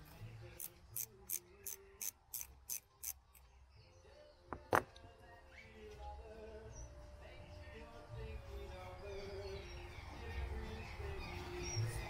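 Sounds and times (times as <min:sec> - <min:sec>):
ratcheting spanner clicking: 0:00.6 - 0:03.3.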